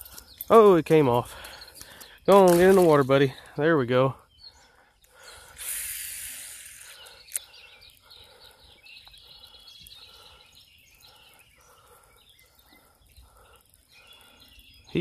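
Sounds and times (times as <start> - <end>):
faint bird chirps: 3.0 - 15.0
fishing line paying out: 5.4 - 7.5
fishing reel retrieving: 5.4 - 7.5.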